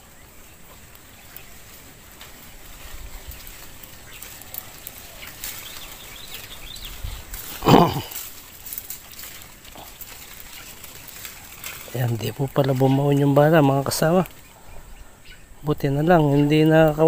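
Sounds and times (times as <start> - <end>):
faint bird chirps: 11.4 - 16.8.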